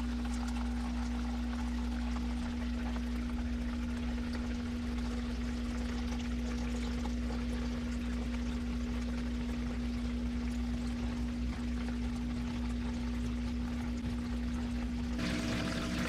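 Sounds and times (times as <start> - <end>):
constant low hum: 0.0 - 16.0
water pouring into container: 15.2 - 16.0.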